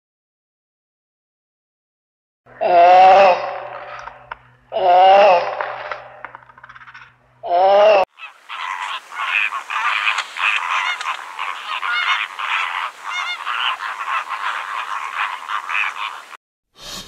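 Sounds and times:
flamingos honking: 8.0 - 16.4.

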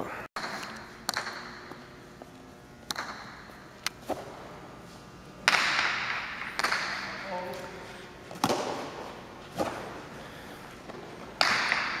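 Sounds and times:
ball cracking off walls: 5.4 - 7.2, 8.3 - 9.0, 10.9 - 12.0.

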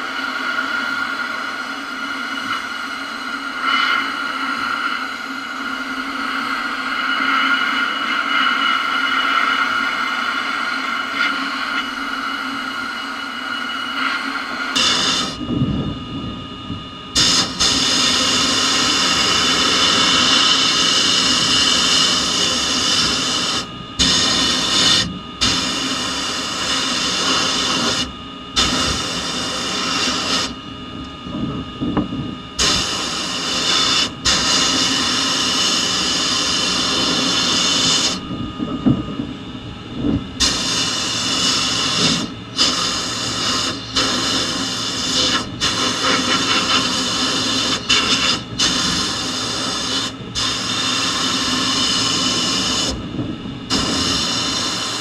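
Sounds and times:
sandblasting gun hissing: 14.7 - 15.4, 17.2 - 30.6, 32.6 - 38.2, 40.4 - 53.0, 53.7 - 55.0.

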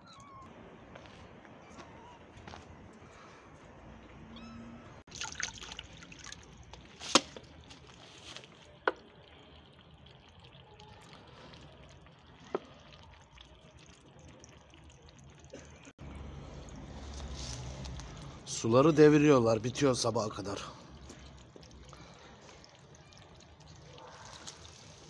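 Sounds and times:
kittens lapping water: 5.0 - 25.0.

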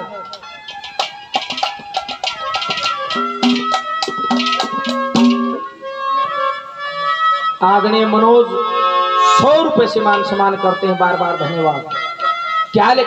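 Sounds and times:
rapid hand-drum strokes: 0.0 - 5.6
sustained reed melody: 0.0 - 5.9.

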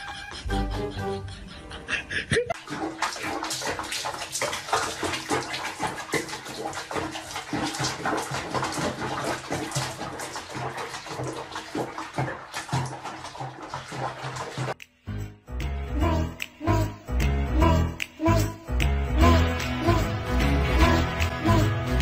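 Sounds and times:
water splashing in a sink: 2.5 - 14.8.

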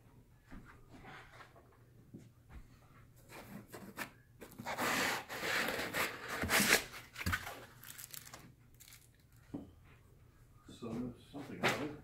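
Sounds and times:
foam scraping against cardboard: 4.5 - 7.1.

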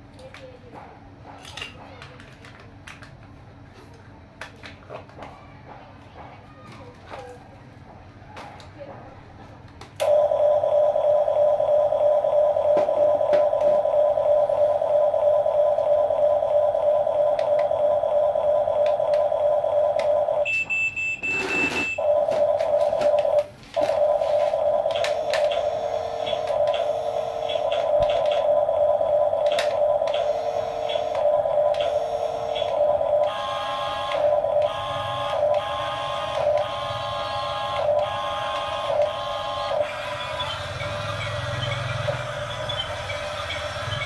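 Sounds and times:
stepped beeping tones: 10.1 - 44.0
electronic engine hum: 21.9 - 44.0.

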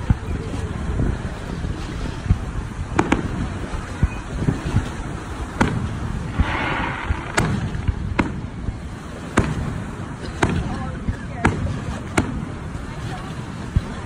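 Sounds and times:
firework shells bursting: 5.6 - 9.7
firework hiss: 5.6 - 10.1
steady low rumble: 5.8 - 9.8.

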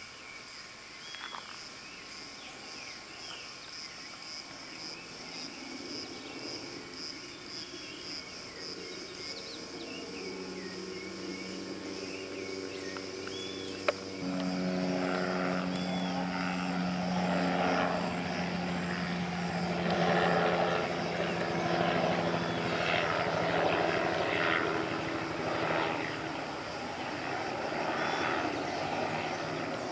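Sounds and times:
pulsing insect chorus: 0.0 - 29.9
birds chirping: 7.2 - 29.9
low hum: 10.1 - 29.8.

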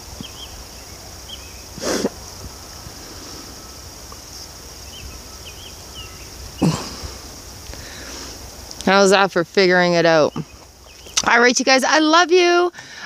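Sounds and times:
steady high hiss: 0.0 - 13.0
faint high chirps: 0.2 - 8.1.

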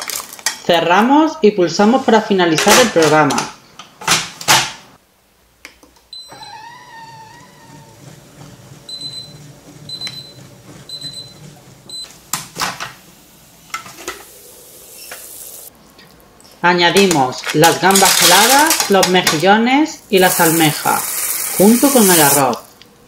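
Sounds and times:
food processor whirring: 6.6 - 12.0.

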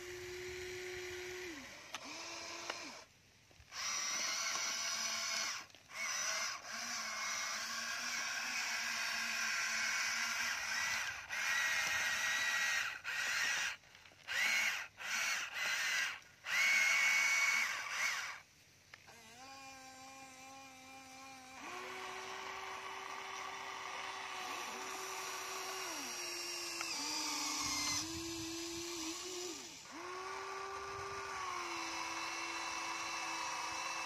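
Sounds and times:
low humming motor tone: 0.0 - 3.1, 19.1 - 34.0
toy excavator motors whining: 0.0 - 34.0.

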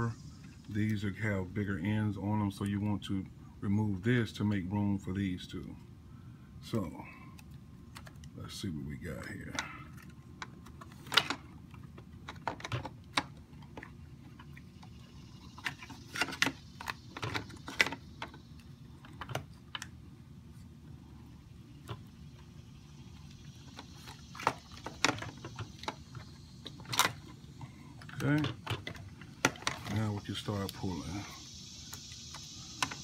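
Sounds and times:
wires and plastic connectors rattling: 9.2 - 14.6, 23.5 - 27.4, 28.0 - 31.2.

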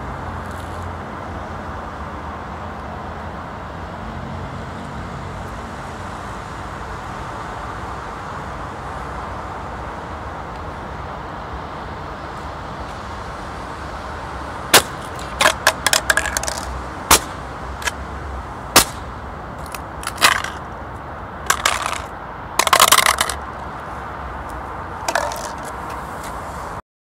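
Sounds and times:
beer cans crushed underfoot: 14.8 - 18.0, 19.6 - 20.6, 21.5 - 23.4, 25.1 - 25.8.

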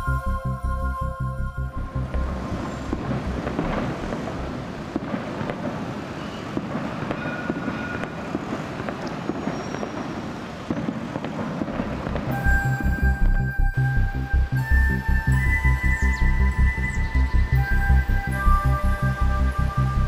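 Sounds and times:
faint high whistling tones: 0.0 - 4.1, 6.1 - 10.7, 12.3 - 20.0
passing vehicles rumbling: 1.8 - 9.4.

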